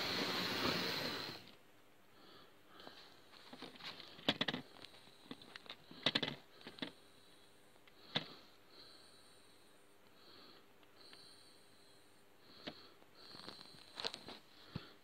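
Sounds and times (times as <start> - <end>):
handling clicks and rustles: 3.3 - 7.0.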